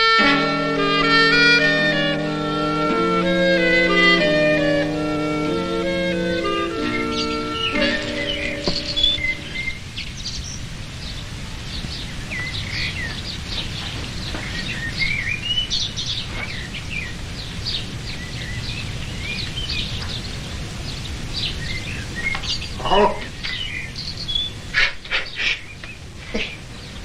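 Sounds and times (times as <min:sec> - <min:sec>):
held music notes: 0:00.0 - 0:09.9
songbirds chirping and singing: 0:02.8 - 0:27.0.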